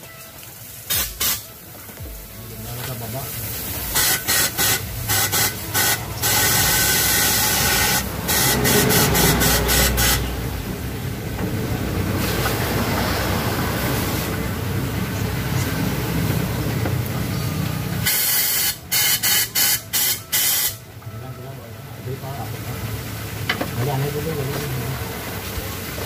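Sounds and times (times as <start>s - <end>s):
air blow gun hissing blasts: 0.8s - 1.5s, 3.4s - 10.6s, 18.0s - 20.8s.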